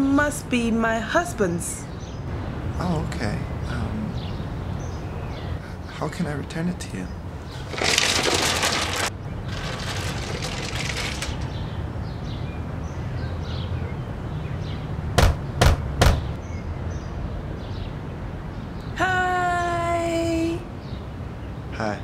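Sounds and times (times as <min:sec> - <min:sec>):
steady background noise: 0:00.0 - 0:22.0
knocks on a door: 0:15.2 - 0:16.4.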